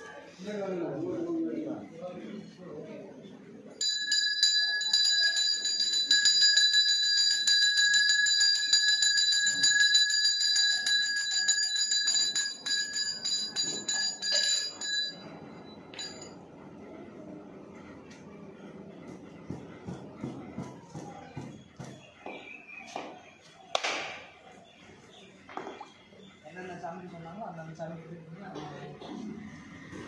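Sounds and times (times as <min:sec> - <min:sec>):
temple bell ringing: 0:03.8 - 0:16.6.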